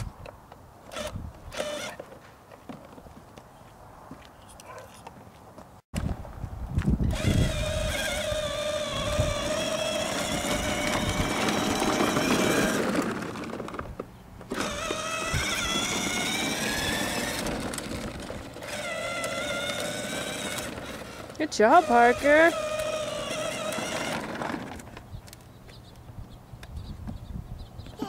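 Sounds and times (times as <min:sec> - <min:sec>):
plastic wheels rolling on asphalt: 0:00.0 - 0:04.3, 0:05.1 - 0:26.2
toy car electric motor whining: 0:00.9 - 0:02.0, 0:07.0 - 0:25.0.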